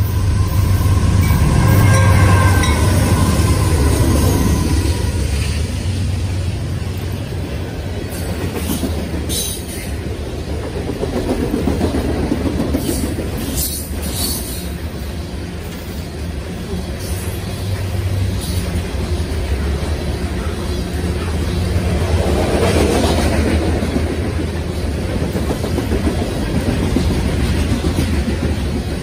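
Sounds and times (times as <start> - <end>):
train wheel squeals: 0.0 - 5.7, 8.1 - 10.0, 12.8 - 14.9, 16.7 - 18.8
locomotive engine drone: 0.0 - 12.5, 13.2 - 29.0
freight cars rumbling: 0.0 - 29.0.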